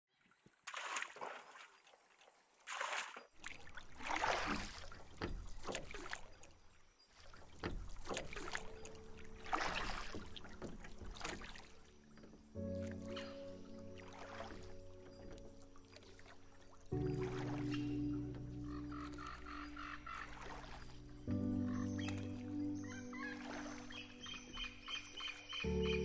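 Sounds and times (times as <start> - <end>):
water splashing against wooden boat: 0.2 - 26.0.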